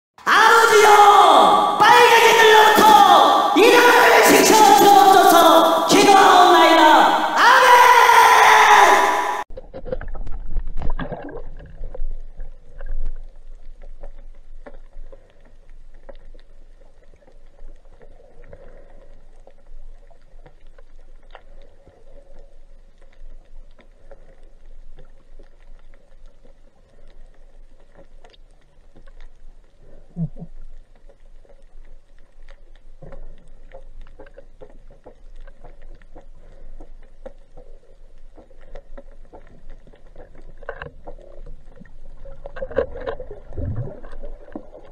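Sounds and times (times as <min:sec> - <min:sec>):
water swishes: 0:09.1 - 0:44.9
faint clicks and crackles: 0:09.6 - 0:44.9
underwater wash of water: 0:39.4 - 0:44.9.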